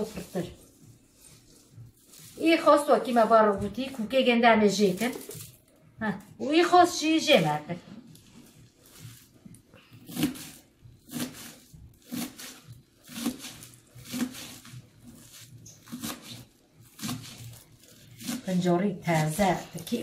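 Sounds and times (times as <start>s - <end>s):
knife chopping on plastic board: 10.0s - 19.3s.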